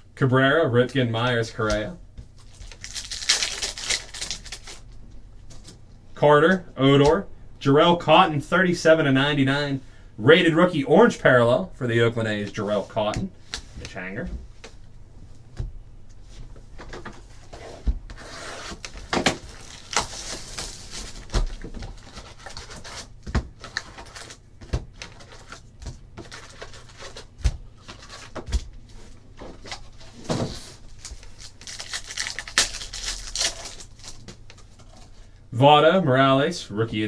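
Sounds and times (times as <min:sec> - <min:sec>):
card pack being torn open: 0:02.4 - 0:04.8, 0:18.7 - 0:24.4, 0:31.0 - 0:34.3
foil wrapper crinkling: 0:02.4 - 0:04.9, 0:18.8 - 0:24.4, 0:30.8 - 0:35.0.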